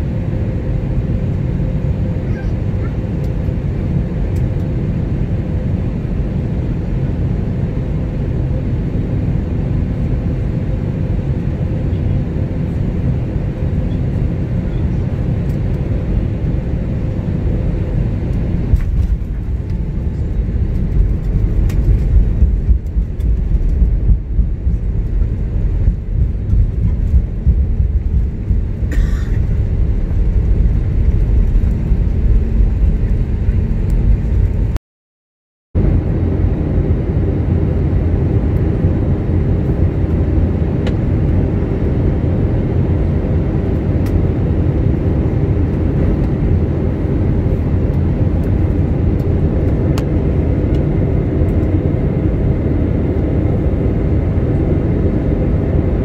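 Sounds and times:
jet engine drone and rumble: 0.0s - 34.8s, 35.8s - 56.0s
steady hum: 0.0s - 34.8s.

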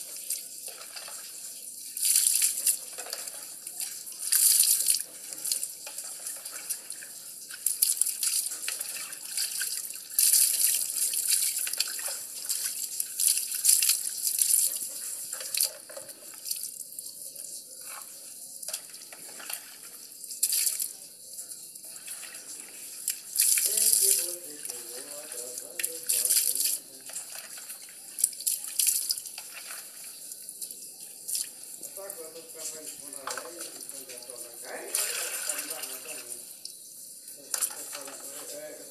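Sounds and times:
water splashing: 0.0s - 36.7s, 37.3s - 38.9s.

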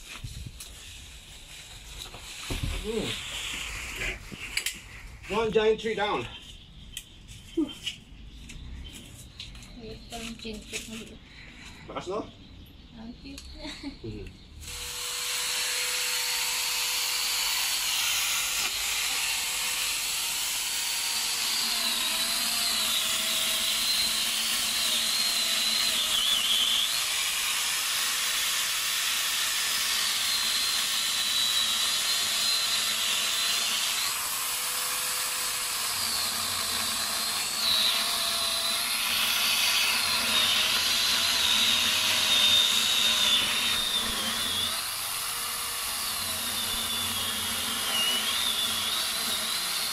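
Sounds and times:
chainsaw cutting wood: 14.6s - 49.9s.

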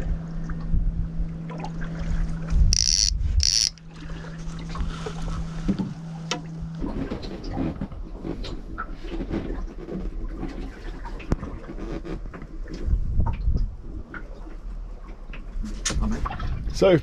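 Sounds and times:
steady low hum: 0.0s - 9.6s
high-pitched electronic beeps: 2.8s - 3.8s.

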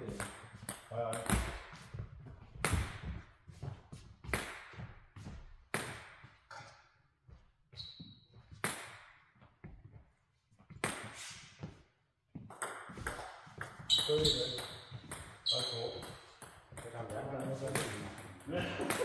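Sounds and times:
table tennis ball bouncing: 0.1s - 1.8s, 12.4s - 19.0s.

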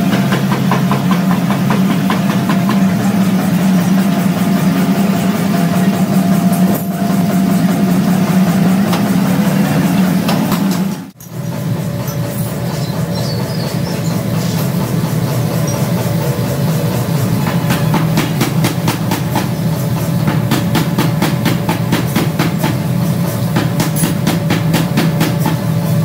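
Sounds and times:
heavy machinery droning: 0.0s - 26.0s.

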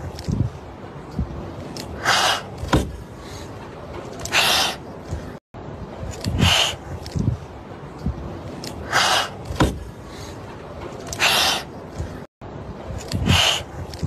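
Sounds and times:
kittens hissing: 2.0s - 2.7s, 4.2s - 4.8s, 6.3s - 6.8s, 8.8s - 9.5s, 11.1s - 11.7s, 13.2s - 13.7s.

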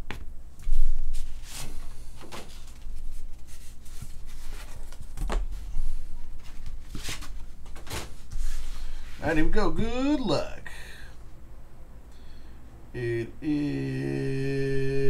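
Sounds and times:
cardboard sheets scraping: 0.8s - 5.8s, 6.4s - 9.2s.

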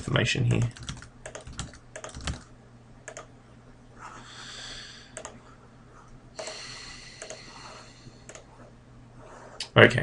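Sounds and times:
sharp computer clicks: 0.5s - 3.3s, 5.1s - 5.4s, 7.2s - 7.6s, 8.2s - 8.5s.

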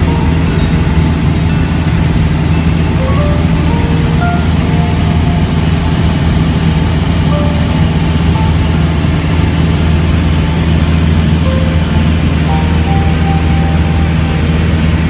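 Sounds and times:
aircraft engine and propeller drone: 0.0s - 15.0s.

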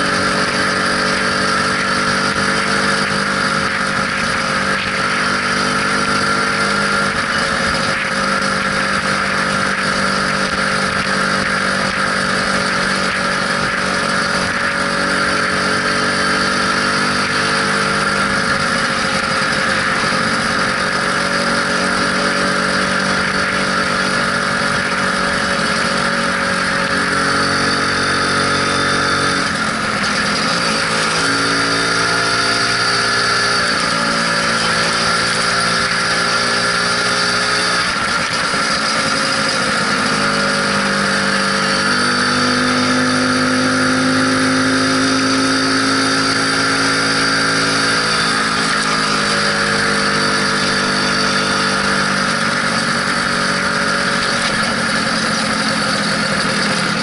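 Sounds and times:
scooter engine running: 0.0s - 57.0s.

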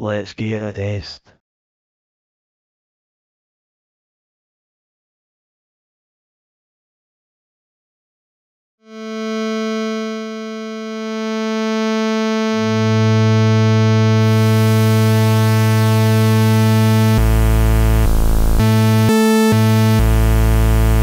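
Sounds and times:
buzzy synthesizer tone: 8.9s - 21.0s.

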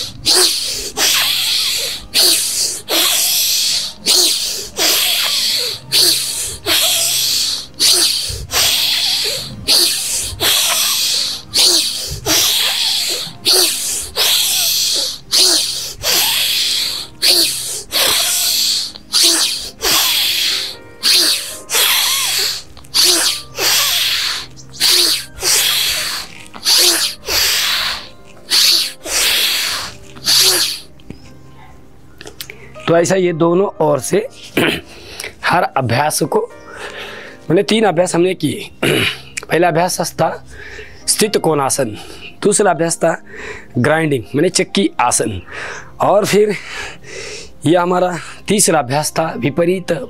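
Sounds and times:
man's forceful hissing breaths: 0.0s - 31.0s, 36.6s - 37.5s, 40.4s - 41.1s, 43.2s - 43.8s, 45.4s - 47.6s.

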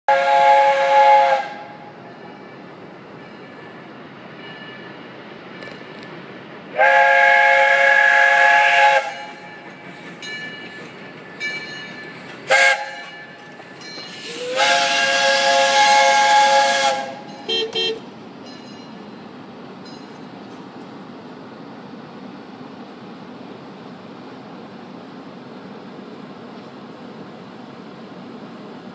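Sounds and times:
steam whistle blasts: 0.1s - 1.8s, 6.7s - 9.4s, 12.5s - 13.1s, 14.2s - 18.0s
steady steam hiss: 0.1s - 17.4s.

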